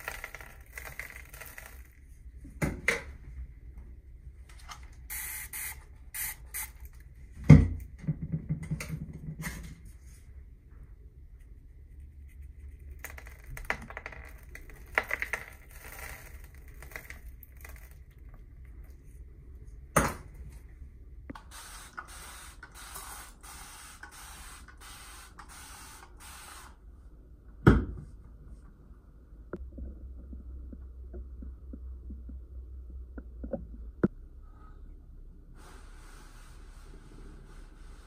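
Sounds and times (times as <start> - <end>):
granules trickling onto rock: 0.0 - 1.9, 12.9 - 18.3.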